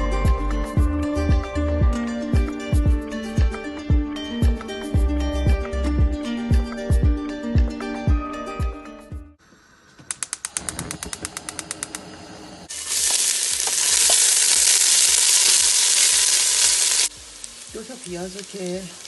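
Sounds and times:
sharp clicks: 10.1 - 12.1
onions sizzling in hot oil: 12.7 - 19.0.

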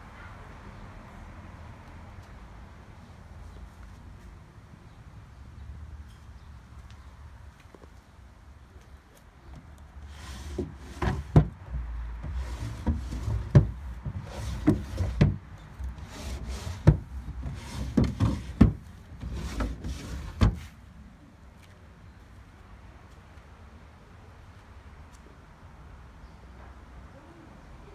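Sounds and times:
wooden drawers sliding: 10.1 - 20.7
drawers knocking shut: 10.4 - 11.6, 12.2 - 15.4, 16.1 - 20.6.

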